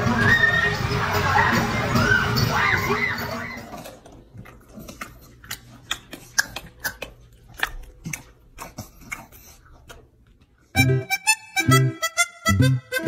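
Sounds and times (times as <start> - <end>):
crowd noise: 0.0 - 4.0.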